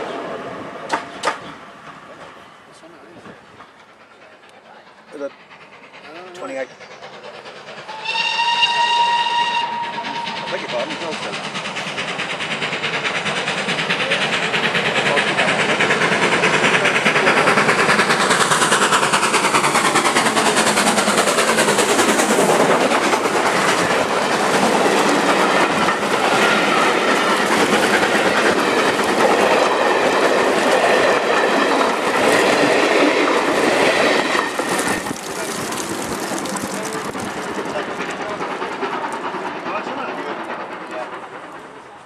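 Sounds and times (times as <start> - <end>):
steam locomotive passing: 0.0 - 42.0
clickety-clack of train wheels: 0.8 - 42.0.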